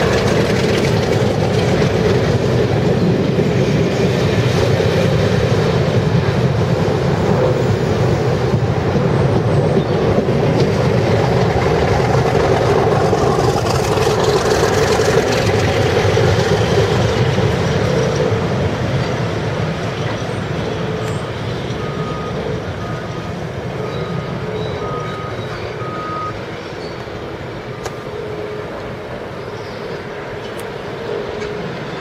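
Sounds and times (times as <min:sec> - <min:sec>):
diesel locomotive engines: 0:00.0 - 0:32.0
short high beeps: 0:23.8 - 0:26.4.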